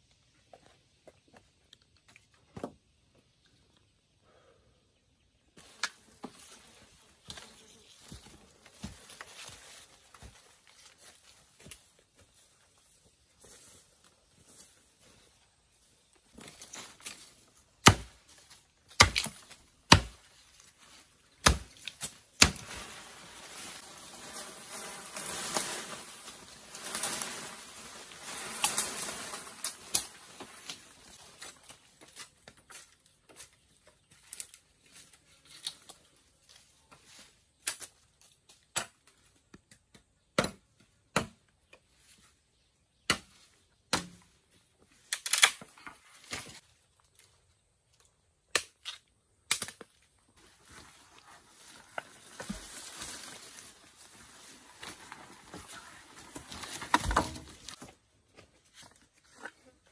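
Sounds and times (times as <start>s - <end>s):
rustling scraping noise: 22.5s - 31.7s.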